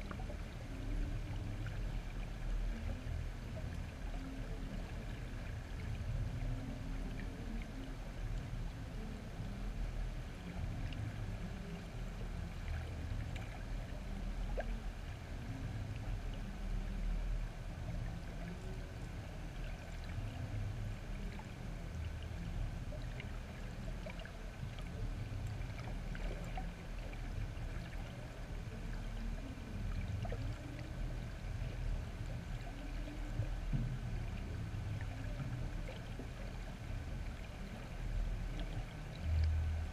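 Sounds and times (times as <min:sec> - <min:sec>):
faint ticks: 0:00.0 - 0:39.9
underwater rumble of moving water: 0:00.0 - 0:39.9.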